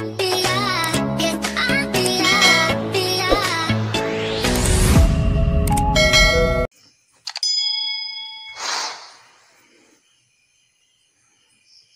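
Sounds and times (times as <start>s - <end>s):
outro music: 1.0s - 6.7s
bell ding: 6.0s - 6.7s, 7.4s - 8.6s.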